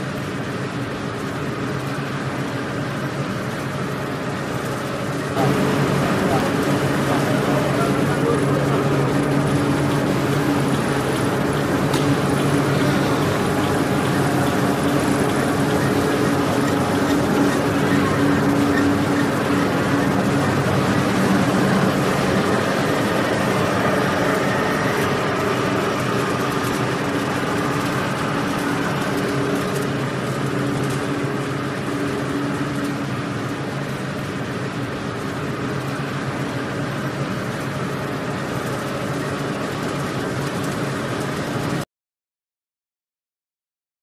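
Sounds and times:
machinery motor hum: 0:00.0 - 0:41.8
mechanical noise: 0:05.1 - 0:36.2.

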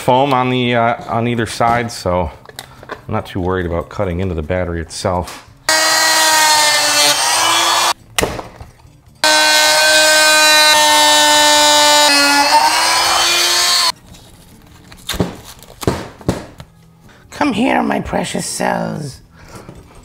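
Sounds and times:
oscillating multi-tool cutting plastic: 0:05.7 - 0:08.0, 0:09.2 - 0:14.0.

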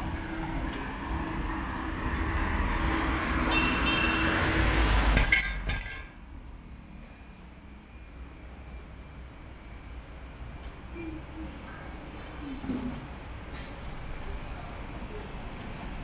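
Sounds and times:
car passing close by: 0:01.4 - 0:05.2.

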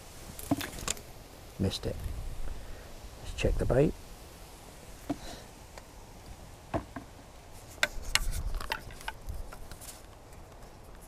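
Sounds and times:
wind rumble on microphone: 0:01.8 - 0:02.6.

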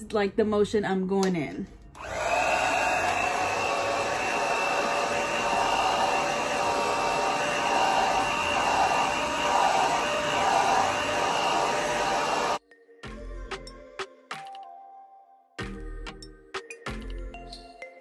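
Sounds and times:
hair dryer running: 0:02.0 - 0:12.6.

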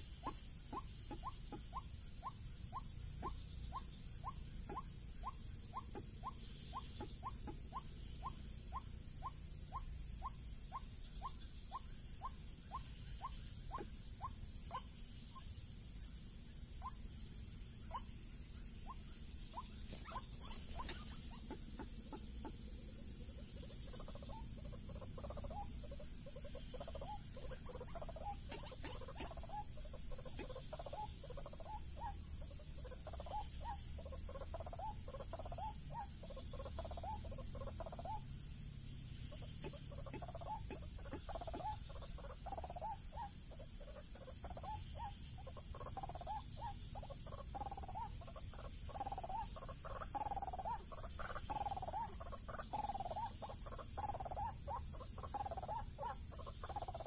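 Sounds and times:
waterhen croaking calls: 0:00.0 - 0:15.5, 0:18.8 - 0:38.3, 0:39.3 - 0:57.0.

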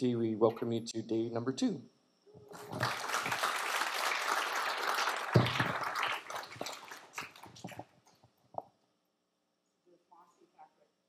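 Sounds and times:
audience applauding: 0:02.5 - 0:07.9.

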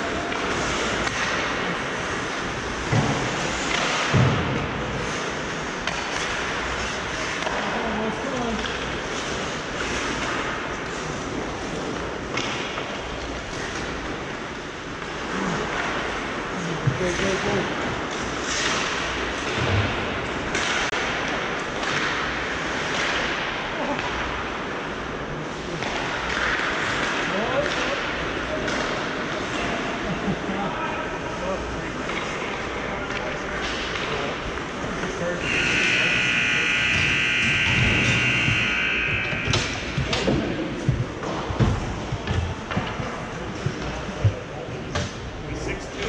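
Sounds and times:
skates scraping ice: 0:00.1 - 0:20.8
hockey sticks and puck knocking: 0:00.2 - 0:07.8, 0:36.8 - 0:45.3.

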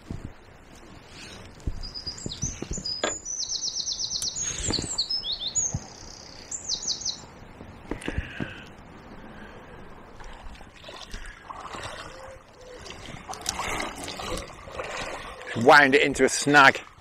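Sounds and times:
songbird chirping and trilling: 0:01.8 - 0:07.3.

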